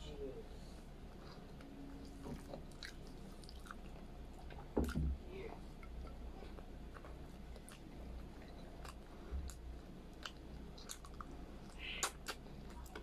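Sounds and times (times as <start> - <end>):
low steady hum: 0.0 - 13.0
person chewing: 1.2 - 5.1, 5.7 - 13.0
wet mouth clicks: 10.2 - 13.0.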